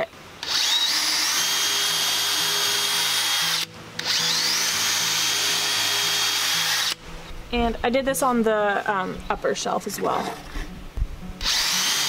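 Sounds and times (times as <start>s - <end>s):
cordless drill whining: 0.0s - 7.0s, 11.4s - 12.0s.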